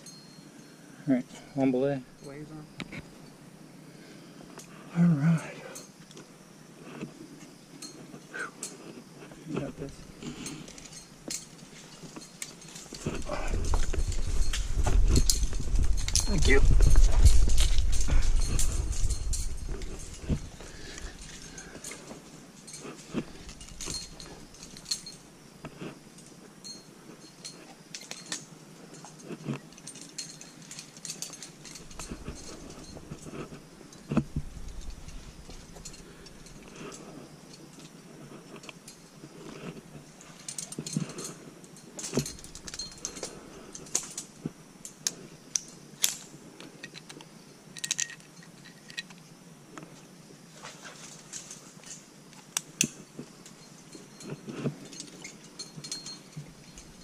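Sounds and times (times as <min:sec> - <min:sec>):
metal climbing gear clinking: 0:00.0 - 0:57.0.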